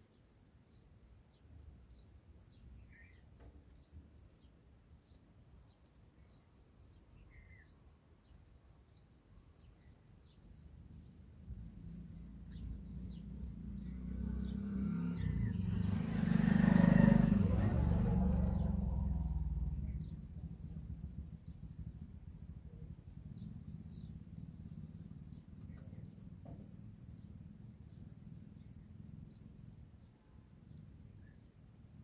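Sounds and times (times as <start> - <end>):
small birds chirping: 0.0 - 32.0
low vehicle engine rumble: 10.0 - 32.0.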